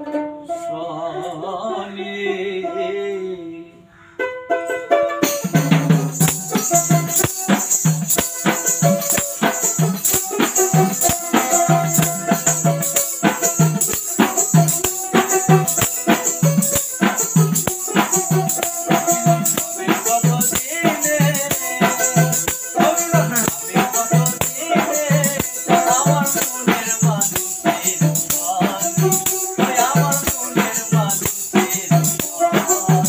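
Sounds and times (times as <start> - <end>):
plucked lute melody: 0.0 - 0.8, 4.2 - 30.5
folk band playing: 4.5 - 33.0
one-string lute twanging: 4.7 - 30.6
jingling rattle: 5.4 - 33.0.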